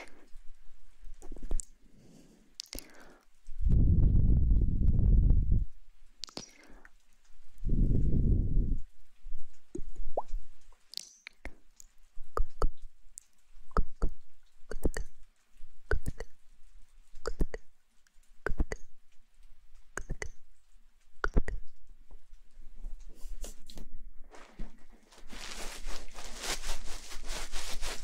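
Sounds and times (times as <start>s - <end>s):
lips and fingers smacking: 2.6s - 3.2s, 6.2s - 7.1s, 9.5s - 16.4s, 17.2s - 19.2s, 19.8s - 21.9s
wet mouth sounds: 2.6s - 5.3s, 6.2s - 7.0s, 9.7s - 16.4s, 17.2s - 17.7s, 18.4s - 19.1s, 19.9s - 20.5s, 21.1s - 21.8s.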